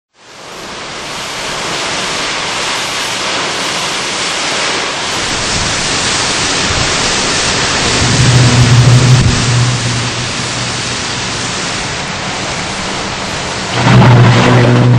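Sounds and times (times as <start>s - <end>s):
driving rain: 0.2s - 14.9s
hurricane wind: 0.2s - 14.9s
wind buffeting microphone: 4.4s - 14.9s.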